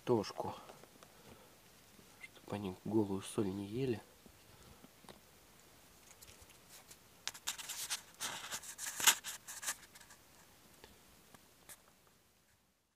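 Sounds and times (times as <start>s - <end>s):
rabbits gnawing and crunching: 4.1s - 12.2s.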